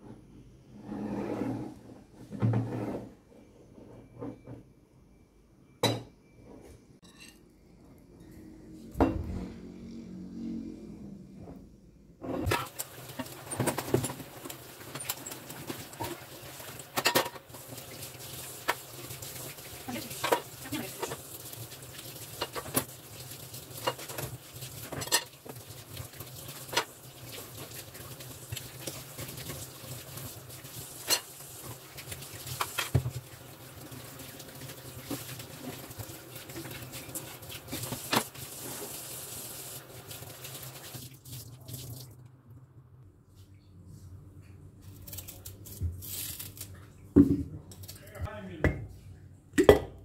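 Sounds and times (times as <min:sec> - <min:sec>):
dishes clinking at sink: 0:05.8 - 0:06.3, 0:16.9 - 0:17.5, 0:20.0 - 0:21.2, 0:23.8 - 0:25.4.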